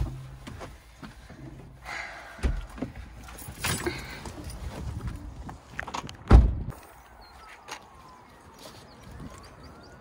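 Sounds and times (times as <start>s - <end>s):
car door slamming: 6.3s - 6.7s.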